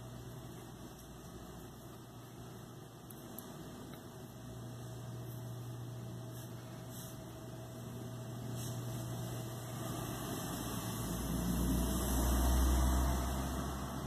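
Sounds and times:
faint background noise: 0.0s - 14.0s.

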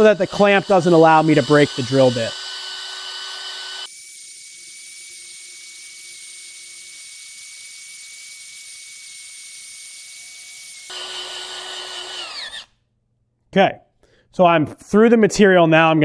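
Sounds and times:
cordless drill boring through steel: 0.0s - 12.7s.

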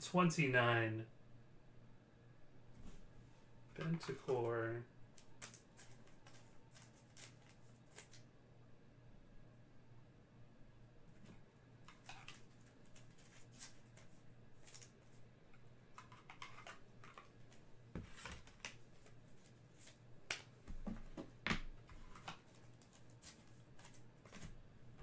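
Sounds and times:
faint steady hum: 0.0s - 25.0s
cards and wrappers rustling: 5.2s - 8.3s, 11.9s - 15.2s, 15.9s - 24.6s.

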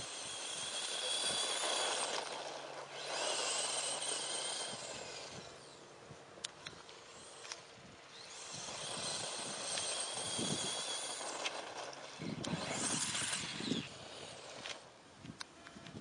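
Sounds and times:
toy truck crashing and scraping: 0.0s - 5.8s, 8.2s - 14.9s
electric motor whining: 0.0s - 15.0s
tyres on dirt and gravel: 0.0s - 16.0s.

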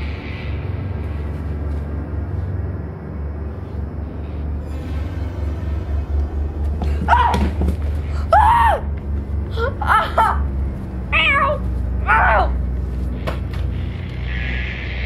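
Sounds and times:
steady low hum: 0.0s - 15.0s
person shrieking: 8.2s - 8.9s.

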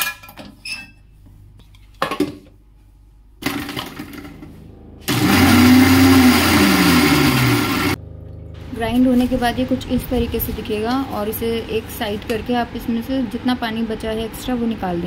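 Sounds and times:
mixer grinder motor running: 3.4s - 15.0s.

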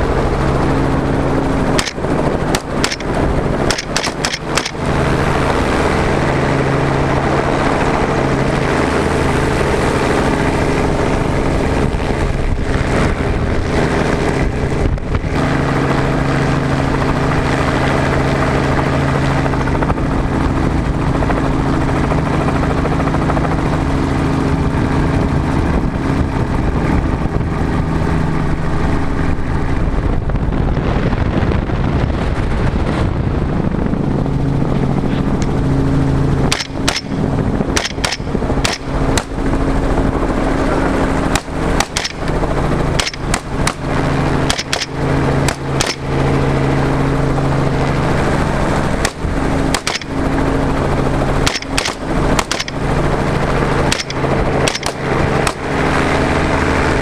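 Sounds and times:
helicopter engine and rotor: 0.0s - 57.0s
wind on microphone: 0.0s - 57.0s
rifle cracks: 1.8s - 5.0s, 36.5s - 37.2s, 37.8s - 39.4s, 41.4s - 42.4s, 43.0s - 43.9s, 44.5s - 46.1s, 49.0s - 50.2s, 51.4s - 52.9s, 53.9s - 55.7s.

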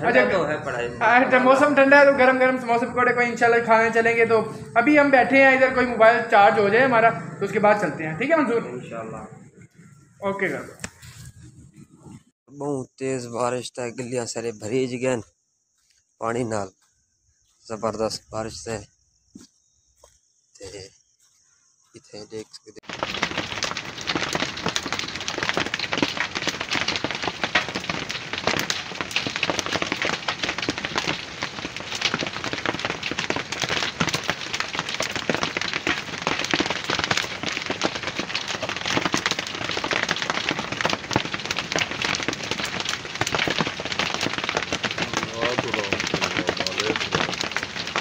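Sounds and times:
hail and rain pelting earth: 22.8s - 48.0s.

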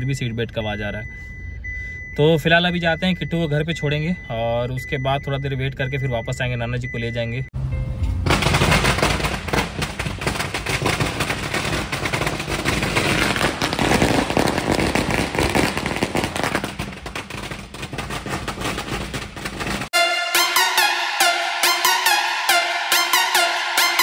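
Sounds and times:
firecrackers crackling: 8.2s - 20.0s
electronic music: 19.9s - 24.0s.

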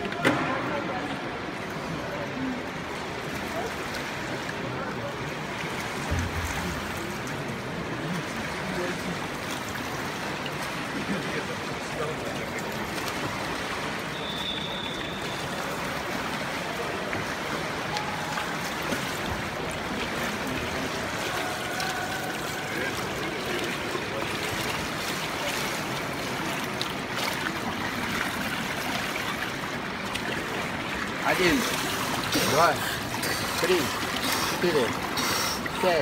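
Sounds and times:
pool water lapping and trickling: 0.0s - 36.0s.

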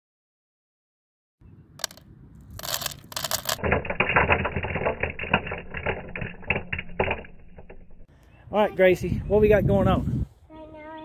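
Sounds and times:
seeds clattering into a hopper: 1.8s - 7.9s.

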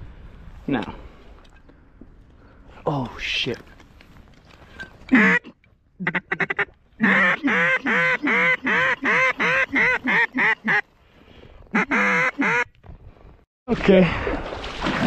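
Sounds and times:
duck quacking: 5.1s - 10.8s, 11.7s - 12.7s.

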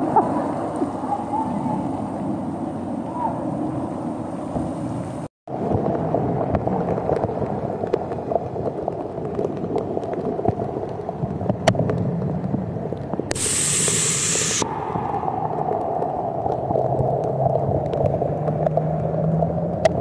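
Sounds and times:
torrential rain on pavement: 5.5s - 20.0s
water sheeting off canopy: 13.3s - 14.7s.

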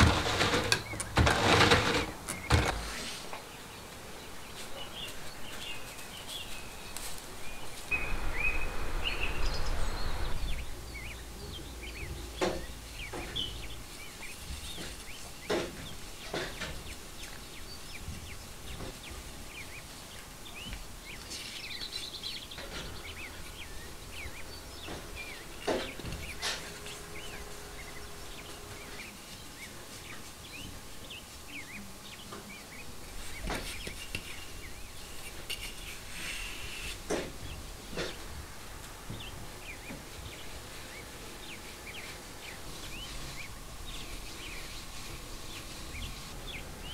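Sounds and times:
small birds chirping: 0.0s - 46.9s
rushing noise and low rumble: 7.8s - 12.9s.

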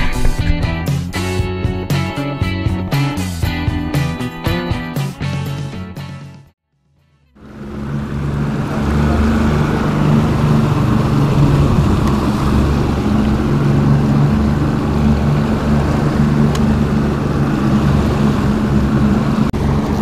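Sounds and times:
outboard motors humming: 7.4s - 20.0s
water rushing: 7.4s - 20.0s
wind: 7.4s - 20.0s.

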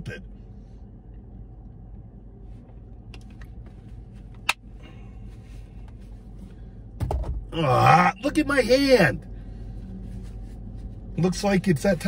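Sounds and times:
car interior hum: 0.0s - 12.0s.

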